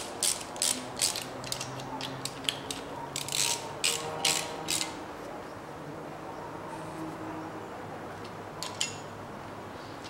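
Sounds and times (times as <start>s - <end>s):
ratchet wrench clicking: 0.0s - 5.0s.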